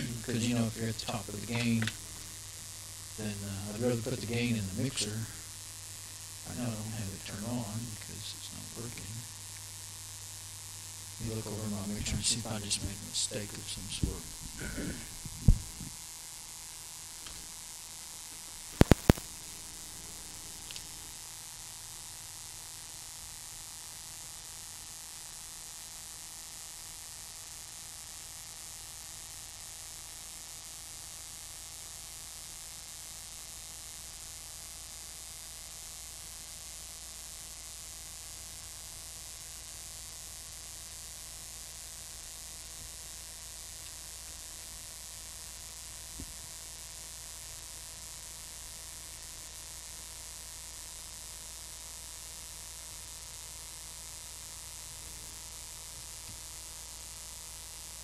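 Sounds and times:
low hum: 0.0 - 9.3, 11.0 - 16.0
electrical hiss: 0.0 - 58.0.

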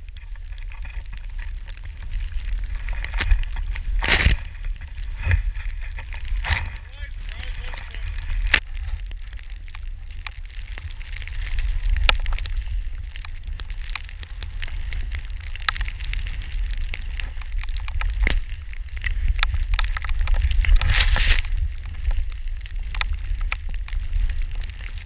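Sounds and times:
crackles and ticks of snow: 0.0 - 25.0
wind rumbling on microphone: 0.0 - 25.0.

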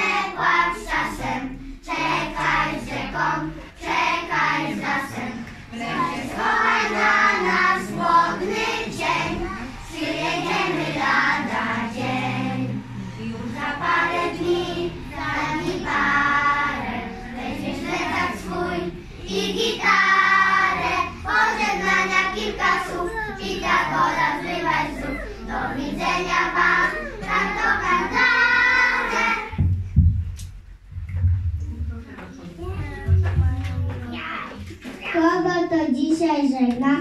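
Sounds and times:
children singing in unison: 0.0 - 29.7.

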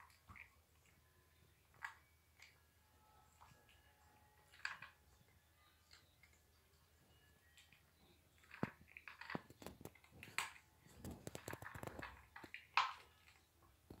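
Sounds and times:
cat crunching food: 8.4 - 13.5.

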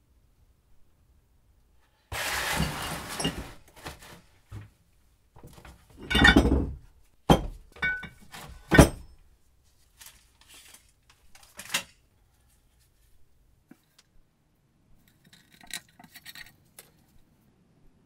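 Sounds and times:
metal parts scraping rattle: 2.1 - 4.2
metal ringing clink: 7.8 - 8.2.

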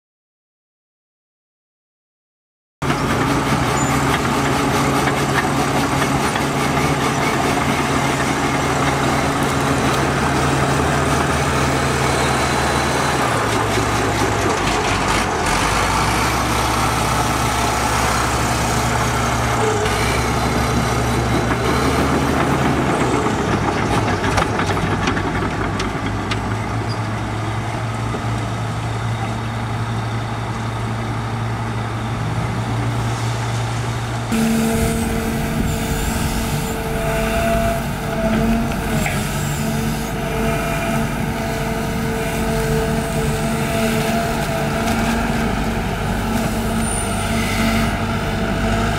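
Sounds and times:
heavy machinery diesel engines droning: 2.8 - 48.9.

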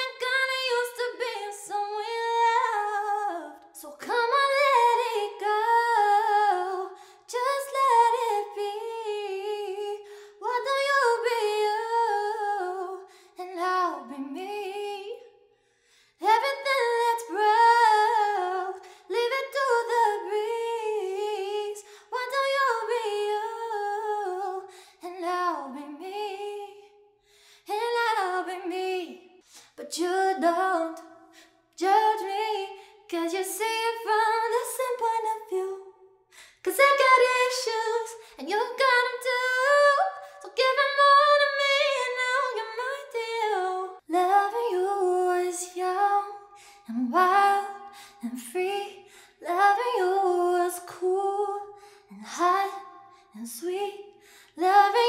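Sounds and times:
woman singing unaccompanied: 36.6 - 52.8.

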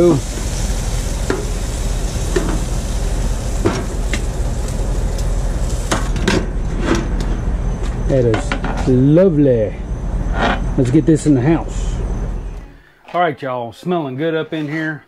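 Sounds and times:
steady hiss: 0.0 - 15.0
metal grill lid shutting: 5.8 - 7.2.

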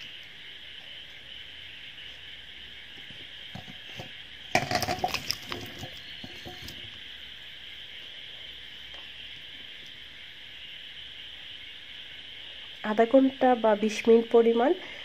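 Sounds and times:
ginger clattering into metal bowl: 3.6 - 6.8.

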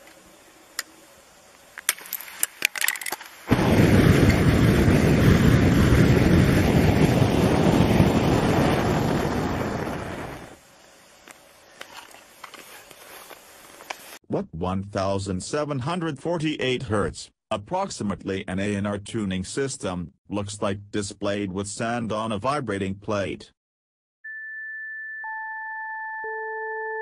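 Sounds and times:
gas bursting out rushing: 3.5 - 10.6.

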